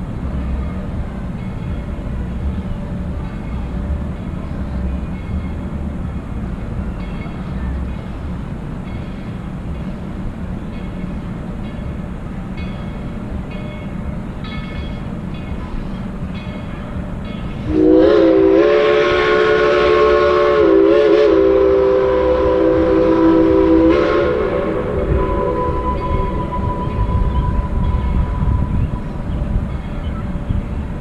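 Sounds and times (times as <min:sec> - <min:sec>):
distant train rumble: 0:00.0 - 0:31.0
steam locomotive chime whistle: 0:12.6 - 0:30.8.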